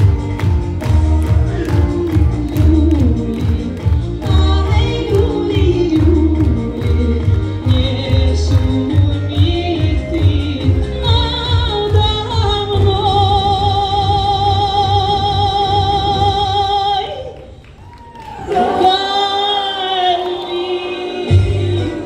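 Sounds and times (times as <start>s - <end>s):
pop backing track: 0.0s - 17.1s
woman singing with vibrato: 1.2s - 17.4s, 18.4s - 22.0s.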